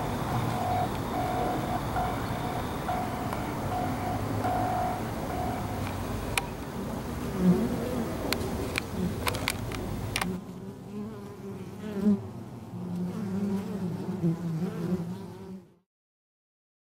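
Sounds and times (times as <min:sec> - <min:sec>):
bee swarm buzzing: 0:00.0 - 0:09.2
sharp clicks: 0:00.4 - 0:06.5.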